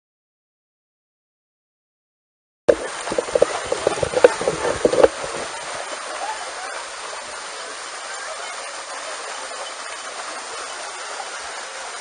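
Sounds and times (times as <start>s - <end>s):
water splashing as dogs wade: 2.7s - 12.0s.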